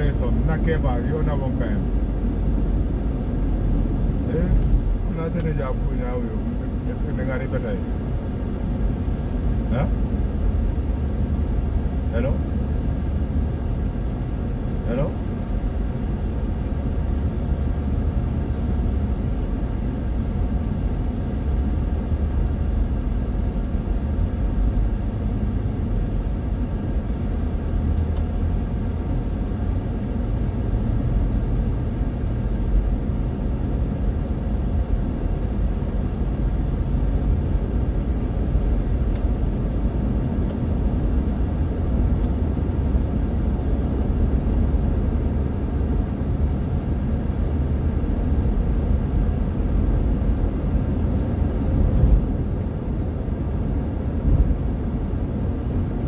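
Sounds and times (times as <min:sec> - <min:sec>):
car engine rumble inside cabin: 0:00.0 - 0:56.0.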